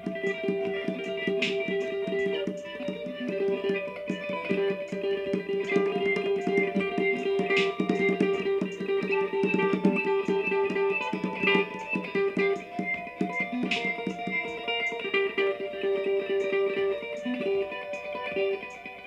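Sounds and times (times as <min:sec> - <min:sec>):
electric guitar picked figure: 0:00.0 - 0:19.0
live band jamming: 0:00.0 - 0:19.0.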